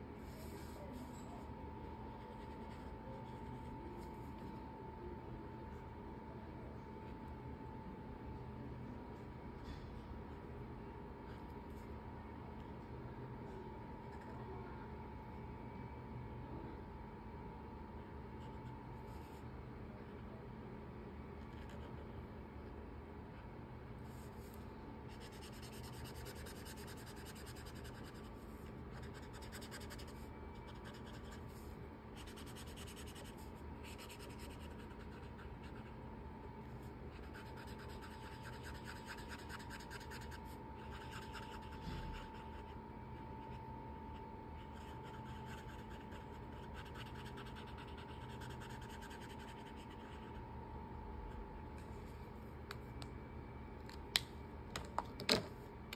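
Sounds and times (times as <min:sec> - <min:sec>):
marker scratching on paper: 0:24.0 - 0:36.0, 0:37.1 - 0:42.7, 0:44.6 - 0:50.4.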